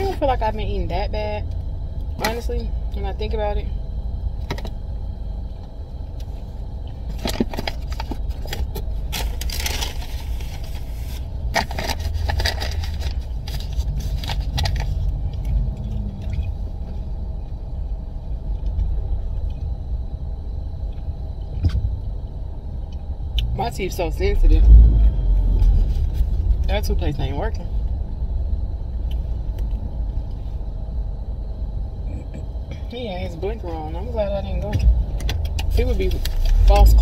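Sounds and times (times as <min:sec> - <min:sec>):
low rumble inside car: 0:00.0 - 0:37.0
food wrapper and paper bag crinkling: 0:07.1 - 0:15.1.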